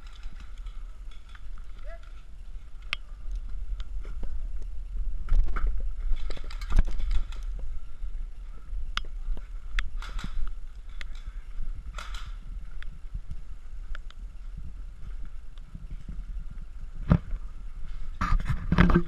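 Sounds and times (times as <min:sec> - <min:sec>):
wind rumbling on microphone: 0:00.0 - 0:19.0
sharp clicks: 0:08.9 - 0:11.3, 0:11.9 - 0:12.9.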